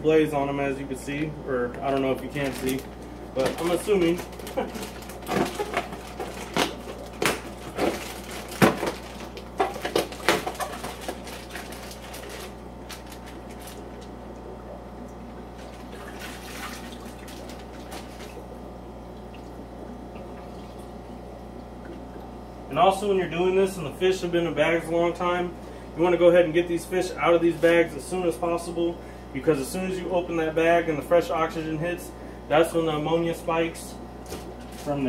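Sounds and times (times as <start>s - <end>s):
steady low hum: 0.0s - 35.0s
plastic bag crinkling: 1.8s - 14.2s, 34.4s - 35.0s
water pouring into plastic bucket: 15.8s - 18.4s.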